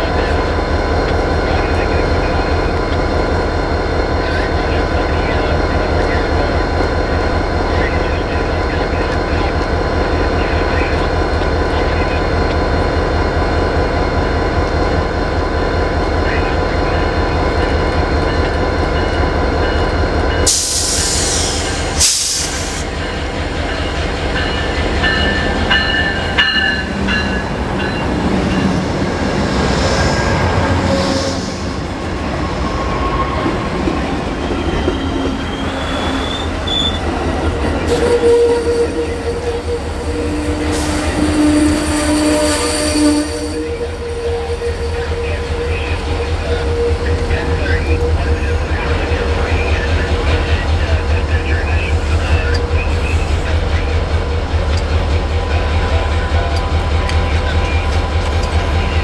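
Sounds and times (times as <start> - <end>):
diesel locomotive engine rumble: 0.0 - 59.0
loud hiss bursts: 20.5 - 23.0
wheels squealing on rails: 29.6 - 50.6.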